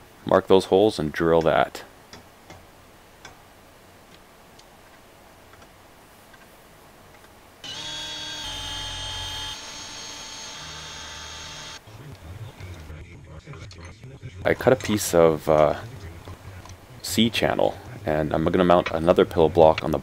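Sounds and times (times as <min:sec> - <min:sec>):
cordless drill drilling steel: 0:07.6 - 0:11.8.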